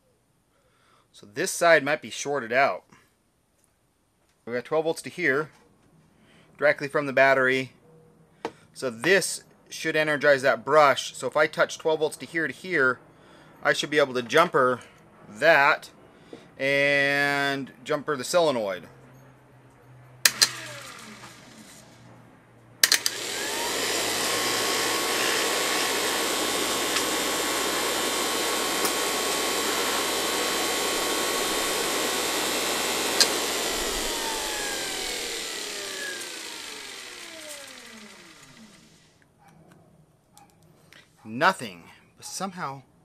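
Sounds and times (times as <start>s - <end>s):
motor whine and hum: 20.3s - 21.8s, 22.8s - 39.0s.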